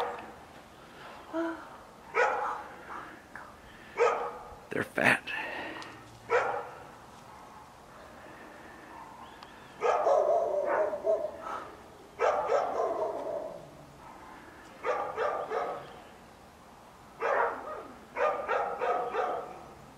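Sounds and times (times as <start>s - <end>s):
dog barking: 0.0s - 0.3s, 2.1s - 2.7s, 4.0s - 4.5s, 6.3s - 7.6s, 9.8s - 13.6s, 14.8s - 15.8s, 17.2s - 19.6s.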